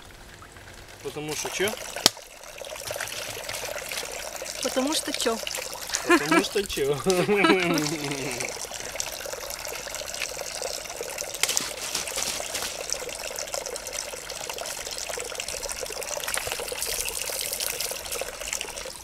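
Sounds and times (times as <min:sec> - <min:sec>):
spring water trickling and splashing: 0:00.0 - 0:19.0.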